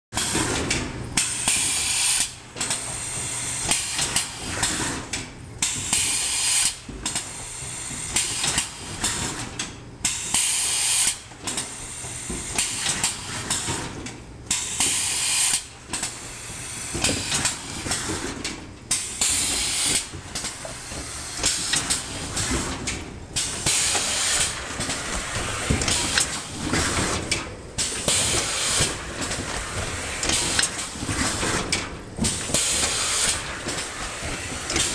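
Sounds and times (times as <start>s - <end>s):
air cylinders hissing: 18.9s - 22.6s, 23.4s - 27.2s, 27.8s - 31.4s, 32.2s - 34.9s.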